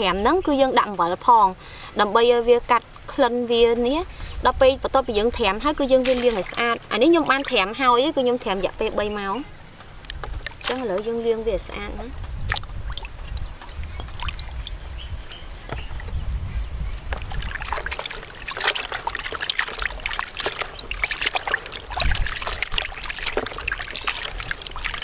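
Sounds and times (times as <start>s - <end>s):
water splashing and trickling: 0.0s - 25.0s
hands swishing in water: 5.8s - 9.0s, 10.1s - 11.2s, 12.1s - 16.2s, 17.0s - 25.0s.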